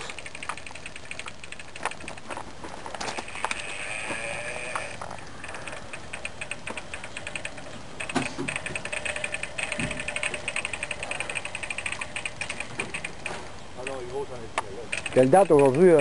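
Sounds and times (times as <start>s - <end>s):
fishing reel ratchet clicking: 8.5s - 13.1s.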